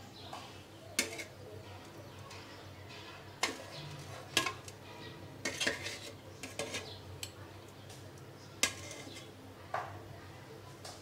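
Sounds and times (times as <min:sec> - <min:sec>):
spoon clinking against pot: 0:01.0 - 0:01.3, 0:03.4 - 0:04.8, 0:05.4 - 0:07.4
metal spoon stirring in metal pot: 0:01.0 - 0:07.4, 0:08.6 - 0:09.4.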